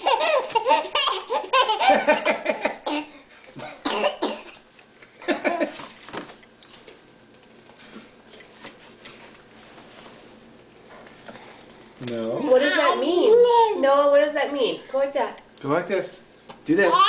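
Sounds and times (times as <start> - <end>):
baby laughing: 0.0 - 3.2, 12.5 - 13.2.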